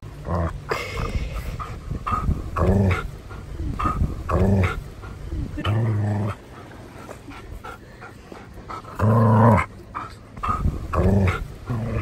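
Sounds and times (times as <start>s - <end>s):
dog play-growling: 0.1s - 12.0s
dog huffing: 0.7s - 5.6s, 10.0s - 12.0s
dog panting: 0.8s - 12.0s.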